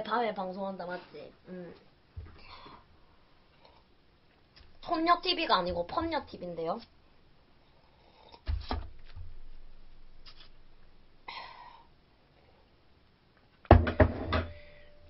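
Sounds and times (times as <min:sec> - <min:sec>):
mug knocking on table: 0:13.7 - 0:14.6.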